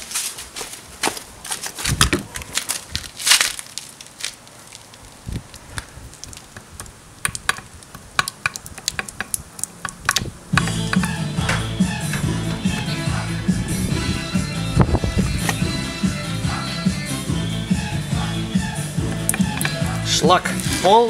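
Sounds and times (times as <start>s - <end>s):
metal parts clicking on concrete: 2.0s - 12.2s.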